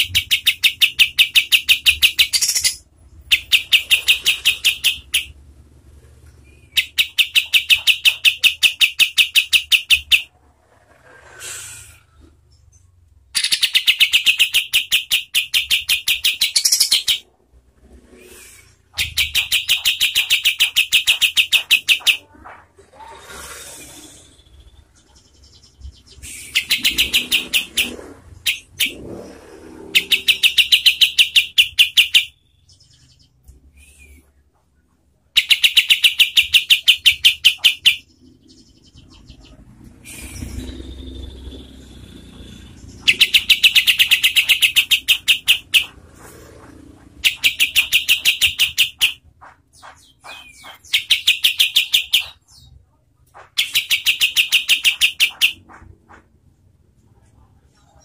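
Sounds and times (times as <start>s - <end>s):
bulbul rapid trill song: 0.0s - 5.4s, 6.8s - 10.3s, 13.4s - 17.2s, 18.9s - 22.4s, 29.9s - 32.4s, 42.6s - 46.0s, 46.9s - 52.6s, 53.4s - 56.3s.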